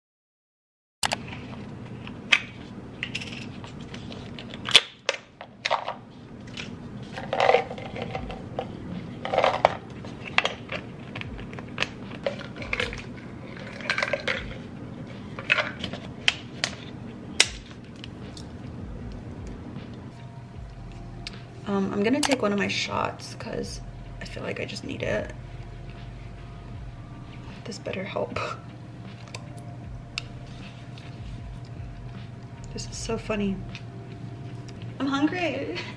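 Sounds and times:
pills rattling in bottle: 6.6 - 10.9.

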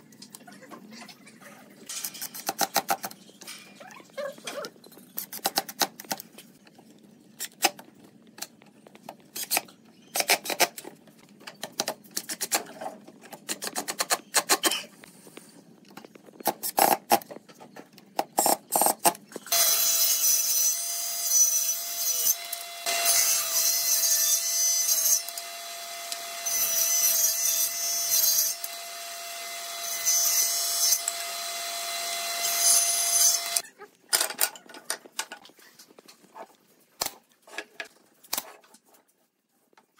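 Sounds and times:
table saw cutting wood: 19.5 - 33.6
cordless drill driving screws: 28.2 - 33.6.

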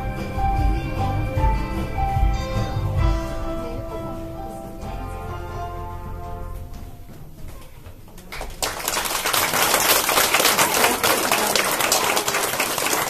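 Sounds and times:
music: 0.0 - 7.6
audience applause: 8.2 - 13.0.

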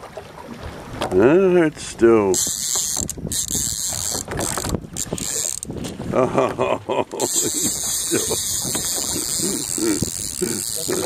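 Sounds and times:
fishing reel ratcheting: 2.3 - 6.0, 7.2 - 11.0.

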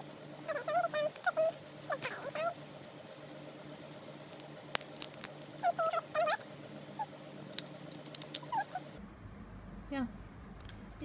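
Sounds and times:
chirping animal calls: 0.4 - 2.6, 5.6 - 7.2, 8.3 - 9.0.

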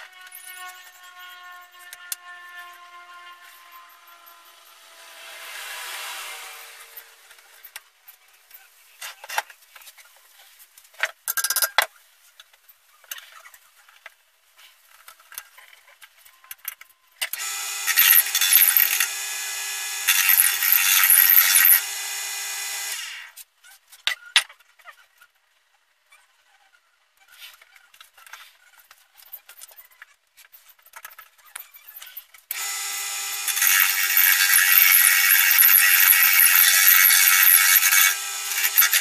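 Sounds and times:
wood lathe whine: 0.0 - 7.7, 17.4 - 23.3, 32.5 - 39.0.

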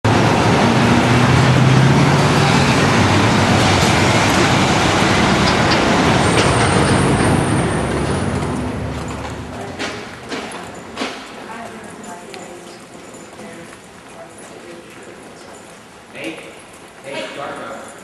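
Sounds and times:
vehicle engine drone: 0.0 - 11.2
city street traffic: 0.0 - 18.0.

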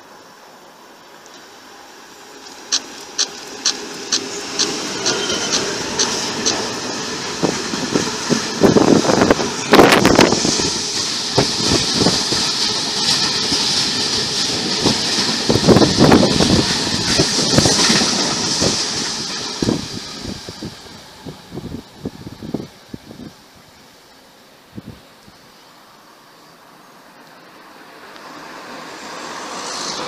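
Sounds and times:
freight train rumbling past: 0.0 - 24.7, 25.6 - 30.0
sharp clicks of train wheels: 2.3 - 21.6, 28.0 - 30.0.

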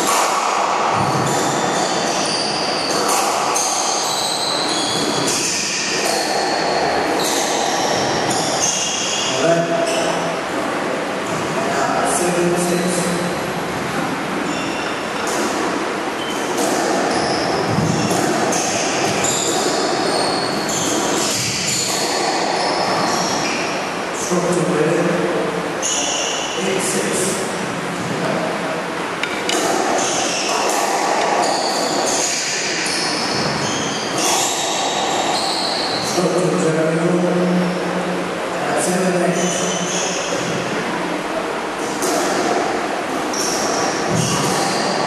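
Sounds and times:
steady background din: 0.0 - 45.0
shoes squeaking on court floor: 0.9 - 10.3, 14.4 - 23.8, 41.8 - 45.0
shoes squeaking on wooden floor: 1.0 - 6.2.

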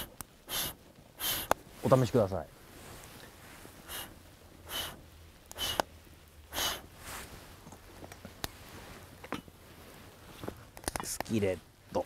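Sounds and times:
hissing puffs of breath: 0.0 - 1.6, 3.2 - 5.9, 6.5 - 7.4.

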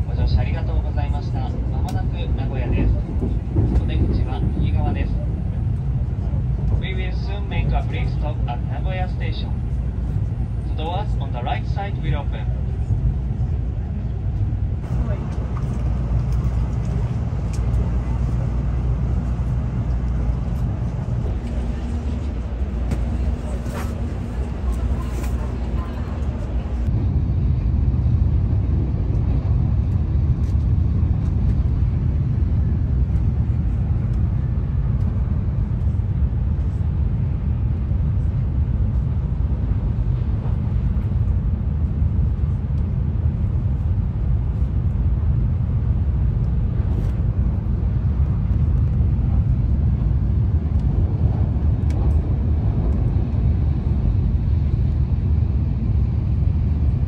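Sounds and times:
train cabin rumble: 0.0 - 27.7.

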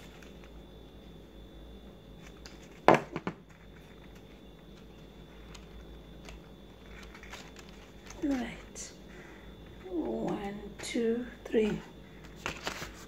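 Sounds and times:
paper rustling and clicking: 2.2 - 8.7, 11.6 - 13.0.

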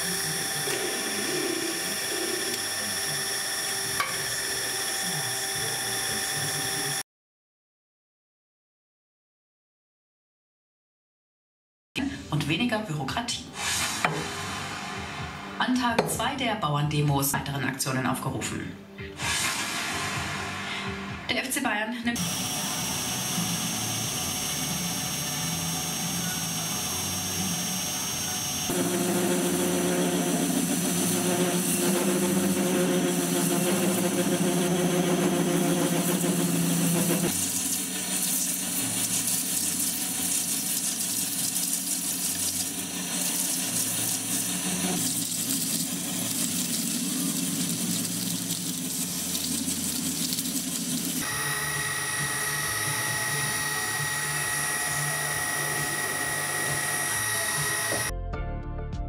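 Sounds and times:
metal lathe humming: 0.0 - 7.0, 22.2 - 58.1
milling machine whine: 0.0 - 7.0, 13.6 - 16.1, 22.2 - 58.1.

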